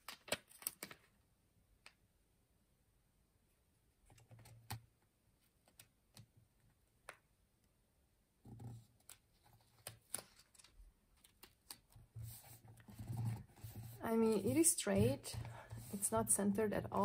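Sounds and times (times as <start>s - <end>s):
paper sticker peeling and crinkling: 0.0s - 1.1s, 9.0s - 12.4s.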